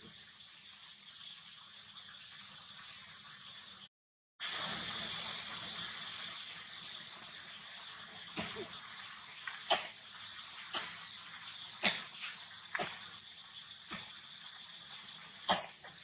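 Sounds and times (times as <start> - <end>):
short sharp cough-like sounds: 15.5 - 15.9.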